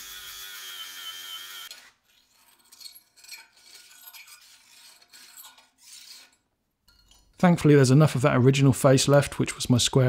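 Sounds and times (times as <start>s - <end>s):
angle grinder whining on steel: 0.0s - 2.5s
hand file rasping on steel: 1.7s - 6.4s.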